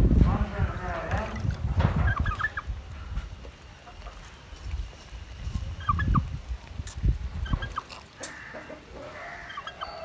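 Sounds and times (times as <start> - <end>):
poultry clucking: 1.9 - 2.7, 5.8 - 6.3, 7.4 - 10.0.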